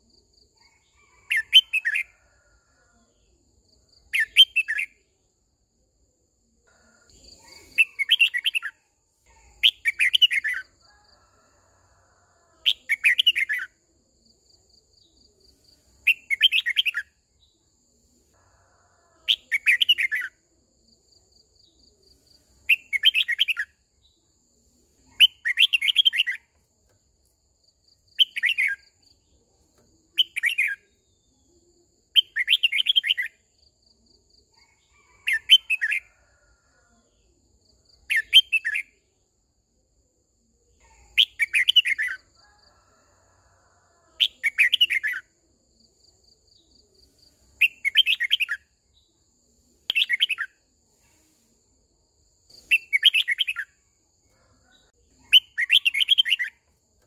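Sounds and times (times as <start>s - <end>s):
bird singing warbling phrases: 1.0s - 2.1s, 7.4s - 10.7s, 19.3s - 20.4s, 25.0s - 26.4s, 40.8s - 42.2s, 55.2s - 56.6s.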